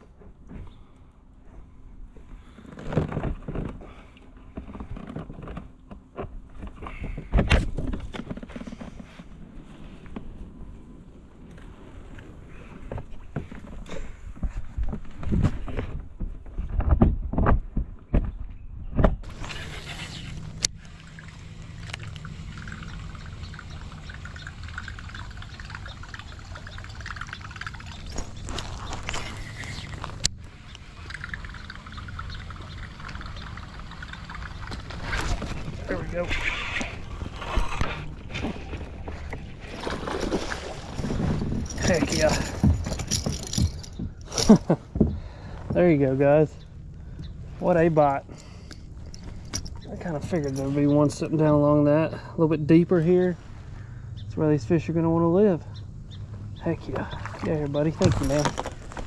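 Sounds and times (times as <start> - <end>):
low steady rumble: 18.7 - 59.0
creek water trickling: 19.3 - 52.2, 54.4 - 59.0
knocks and thumps of gear handling: 41.0 - 45.8, 57.9 - 59.0.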